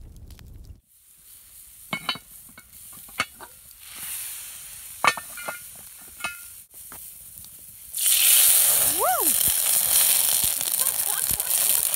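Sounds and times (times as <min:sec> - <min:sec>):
hiss from hot oven: 0:00.8 - 0:05.1, 0:07.8 - 0:11.9
cast iron pot lid clanking: 0:01.9 - 0:03.5, 0:05.0 - 0:05.6, 0:06.2 - 0:06.5.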